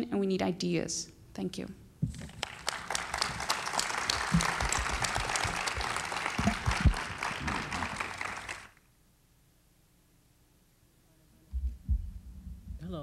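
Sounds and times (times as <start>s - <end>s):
microphone handling thumps: 2.0s - 2.4s, 11.5s - 13.0s
audience applauding: 2.3s - 8.8s.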